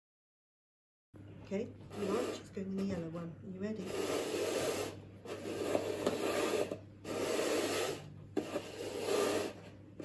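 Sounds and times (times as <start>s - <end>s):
plastic cones scraping on tile floor: 1.9s - 3.0s, 3.8s - 9.8s.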